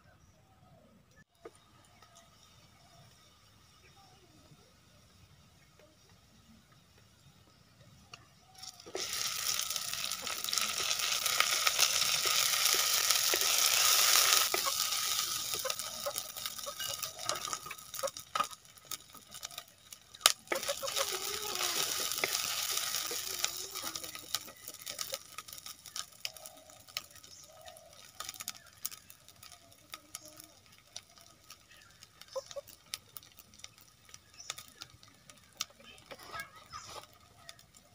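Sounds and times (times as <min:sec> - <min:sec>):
oil sizzling as food fries: 0:01.4 - 0:37.9.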